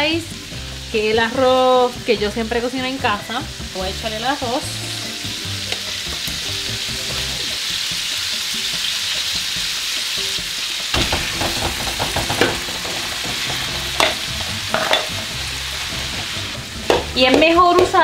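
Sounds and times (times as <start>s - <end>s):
oil sizzling in a wok: 0.0s - 18.0s
metal spatula scraping a wok: 11.3s - 16.1s.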